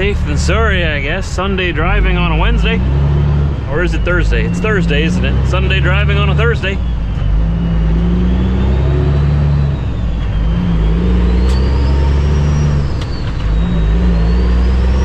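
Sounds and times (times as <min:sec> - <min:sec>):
diesel truck engine accelerating: 0:00.0 - 0:15.0
high whistle: 0:03.7 - 0:15.0.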